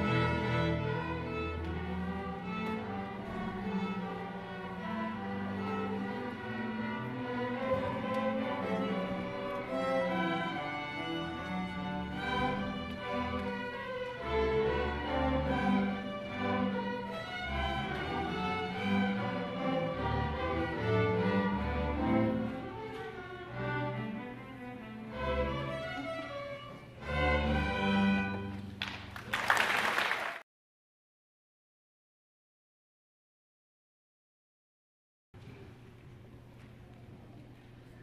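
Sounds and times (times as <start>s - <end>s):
string orchestra playing: 0.0s - 28.8s.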